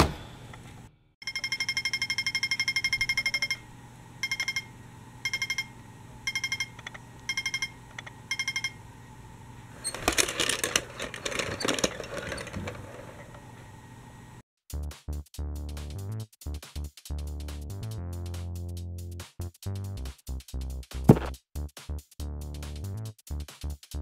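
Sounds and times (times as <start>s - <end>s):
toy crossing signal beeping: 1.2s - 3.6s, 4.2s - 5.7s, 6.3s - 8.8s
toy tram rattling over track: 9.8s - 13.4s.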